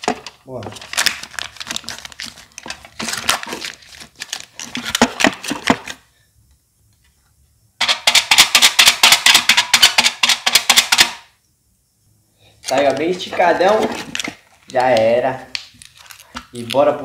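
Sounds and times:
aluminium foil crinkling: 0.0 - 6.0, 12.6 - 17.0.

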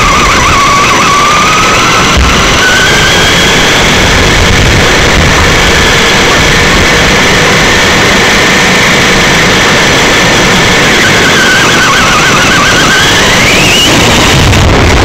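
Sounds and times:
electric motor and gear whine: 0.0 - 15.0
road noise: 0.0 - 15.0.

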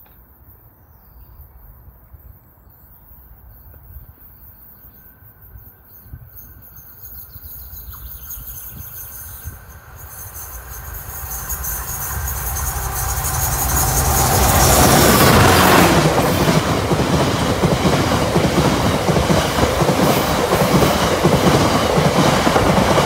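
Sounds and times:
diesel locomotive approaching: 8.9 - 23.0.

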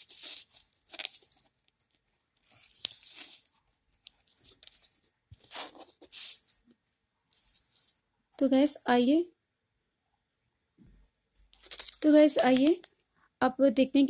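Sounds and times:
plastic sachet crinkling: 0.0 - 6.7, 11.5 - 13.0.

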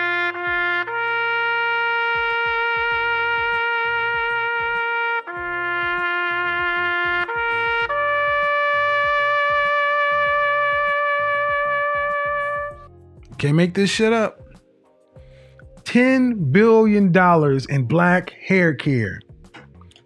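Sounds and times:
brass-like lead synth: 0.0 - 12.9
pulsing bass line: 0.0 - 12.9.

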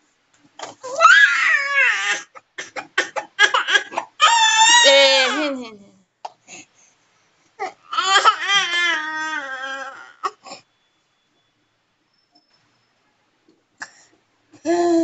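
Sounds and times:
toddler whining cry: 0.8 - 2.3, 3.4 - 5.6, 7.6 - 10.4.

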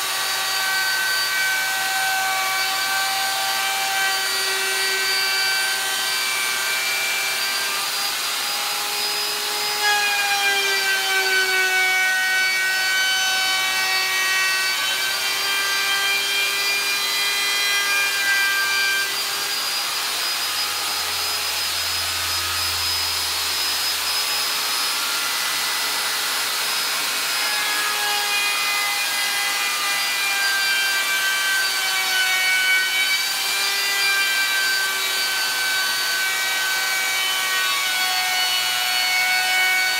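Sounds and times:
router whining cutting plastic: 0.0 - 39.9.

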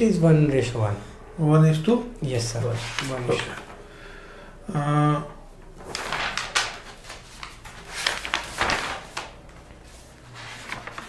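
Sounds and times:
paper pages rustling: 2.5 - 3.8, 5.7 - 11.0.

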